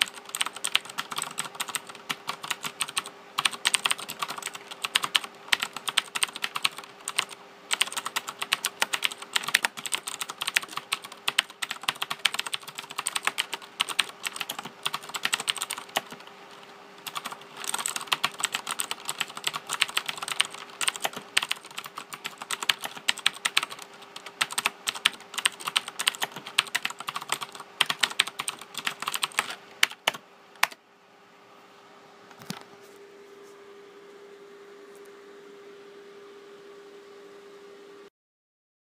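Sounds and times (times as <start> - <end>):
mechanical keyboard typing: 0.0 - 30.8.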